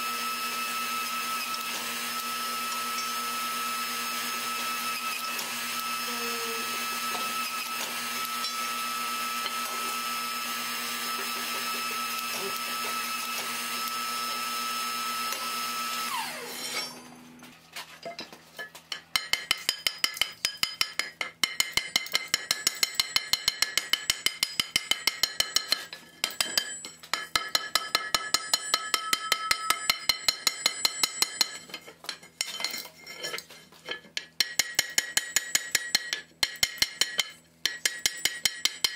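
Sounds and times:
forging machine humming: 0.2s - 17.4s
hammer striking steel on anvil: 16.3s - 17.3s, 18.9s - 32.9s, 33.9s - 38.9s.

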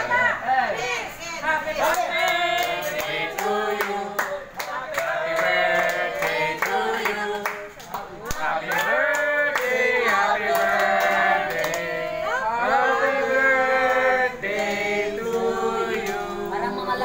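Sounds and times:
group singing: 1.4s - 17.0s
people clapping: 1.8s - 16.7s.

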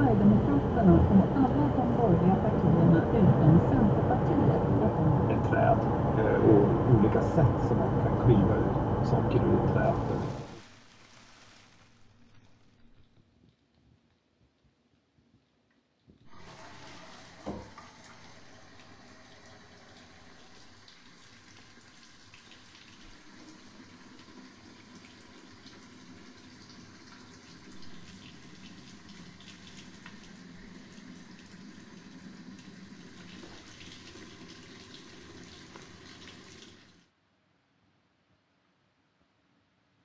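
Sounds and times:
steady rushing noise: 0.0s - 10.6s.

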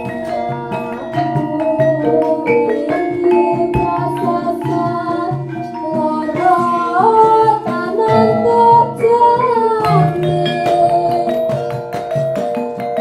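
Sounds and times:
gongs and metallophones playing: 0.0s - 13.0s
person singing: 0.1s - 11.7s
low repeated beat: 7.8s - 12.4s.

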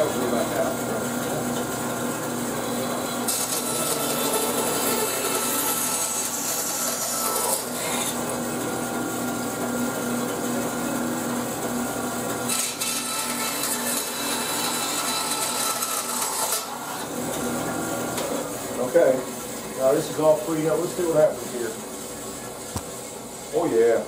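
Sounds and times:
bandsaw cutting wood: 0.0s - 19.2s
bandsaw motor hum: 0.0s - 24.0s.

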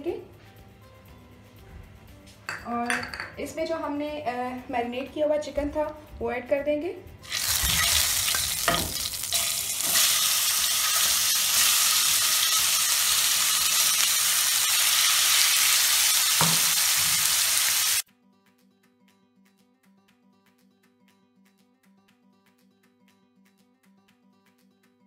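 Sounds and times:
faint guitar music: 0.0s - 14.0s
chicken sizzling in a pan: 7.2s - 18.0s.

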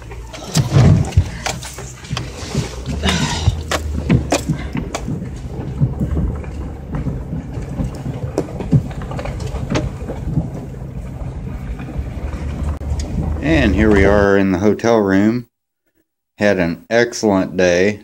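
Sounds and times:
vehicle knocks and rattles: 0.0s - 14.4s
vehicle engine and road rumble: 0.0s - 15.3s.

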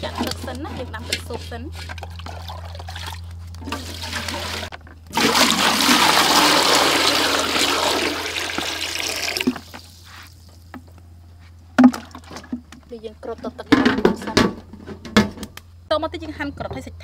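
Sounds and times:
water pouring into metal pot: 3.7s - 9.7s.

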